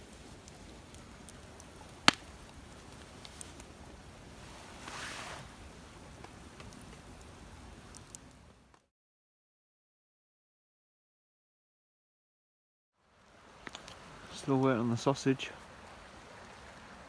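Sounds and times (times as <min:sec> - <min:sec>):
soft rush of noise: 0:00.0 - 0:08.7, 0:13.0 - 0:17.0
campfire crackling: 0:00.0 - 0:08.9, 0:13.0 - 0:17.0
loud pop of fire: 0:02.0 - 0:02.3.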